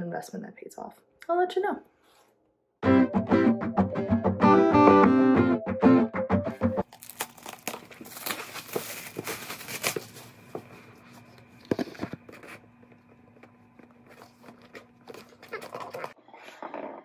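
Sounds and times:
box handling noise: 6.8s - 16.2s
cardboard box scraping rustle: 8.0s - 10.4s.

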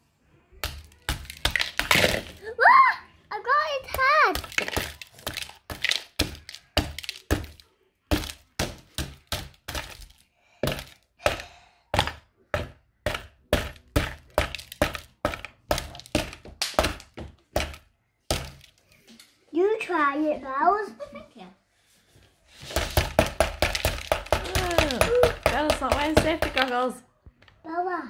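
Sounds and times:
hammer knocking on ice: 4.0s - 18.7s, 22.8s - 26.8s.

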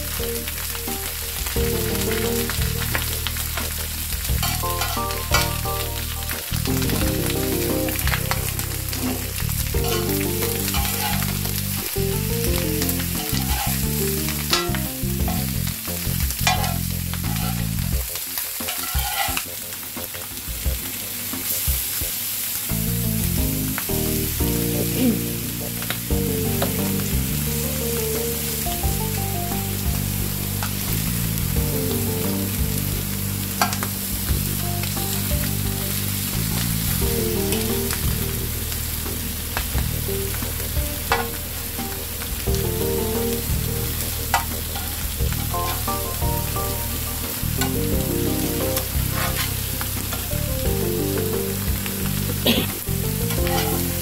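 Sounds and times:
food sizzling on a griddle: 0.0s - 54.0s
metal spoon scraping griddle: 4.4s - 5.5s, 9.0s - 11.6s, 12.7s - 15.5s, 16.4s - 17.6s, 18.6s - 19.5s, 53.4s - 54.0s.

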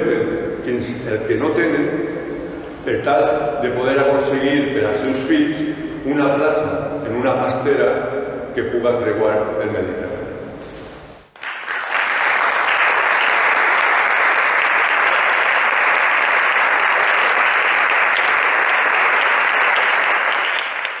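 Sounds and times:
audience applauding: 11.4s - 21.0s.

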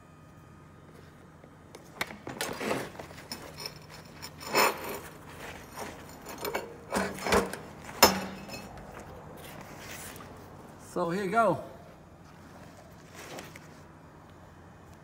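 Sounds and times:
low workshop hum: 0.0s - 15.0s
rubbing and scraping on steel: 3.1s - 8.8s.

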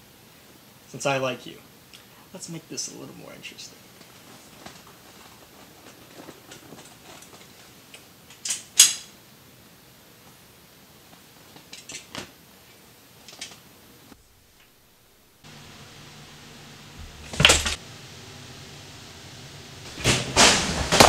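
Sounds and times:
pistol metallic clicks and rattles: 8.3s - 9.1s.

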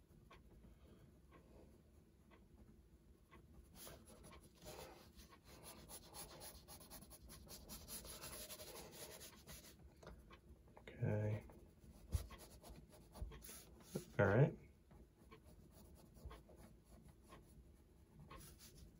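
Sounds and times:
pencil scratching on paper: 3.7s - 9.8s, 11.3s - 14.3s, 15.2s - 18.9s.

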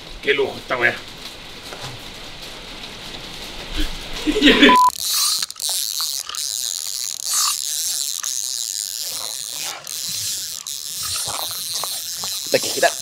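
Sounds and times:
fishing reel ratcheting whir: 4.8s - 13.0s.

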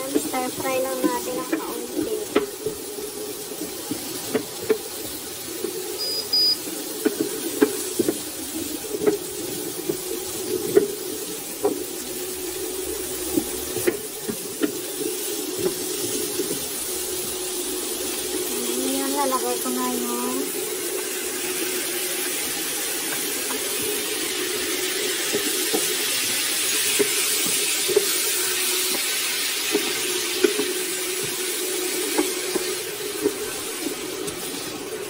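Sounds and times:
vegetables sizzling in oil: 0.0s - 35.0s
short electronic beep: 6.0s - 6.6s
steady low hum: 8.4s - 21.4s.

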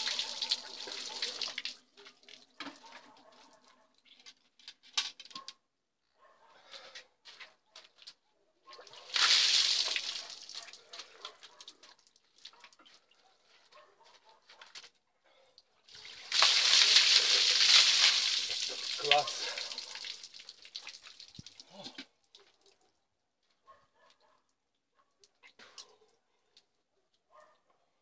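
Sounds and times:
water running off: 0.0s - 1.8s, 9.1s - 10.9s, 15.9s - 21.9s
water splashing from a bucket: 0.0s - 3.0s, 8.8s - 13.0s, 15.9s - 22.8s.

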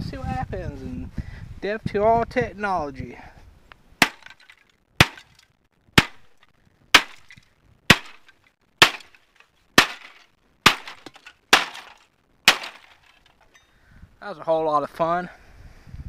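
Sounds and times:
machete chopping plastic: 4.0s - 5.4s, 6.0s - 6.4s, 7.0s - 13.4s.

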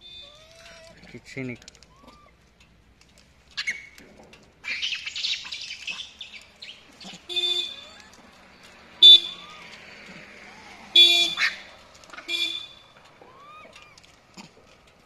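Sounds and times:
monkeys squealing and chattering: 0.2s - 1.1s, 1.8s - 2.4s, 4.6s - 8.4s, 9.1s - 12.3s, 13.2s - 14.6s
motorbike horn honks: 7.3s - 7.9s, 9.0s - 9.4s, 11.0s - 11.4s, 12.3s - 12.8s.

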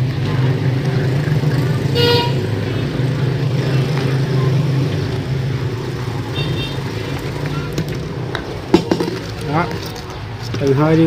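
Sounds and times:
road traffic engine hum: 0.0s - 11.0s
car horn toot: 2.0s - 2.6s.

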